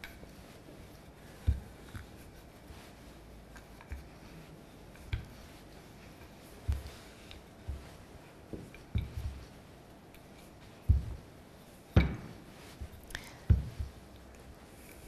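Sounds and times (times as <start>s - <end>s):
rolling pin thumping on dough: 1.3s - 2.9s, 5.0s - 9.7s, 10.6s - 14.2s.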